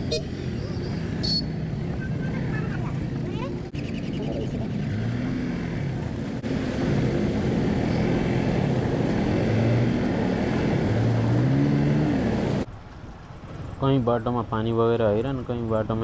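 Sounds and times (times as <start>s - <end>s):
water splashing: 6.0s - 12.7s.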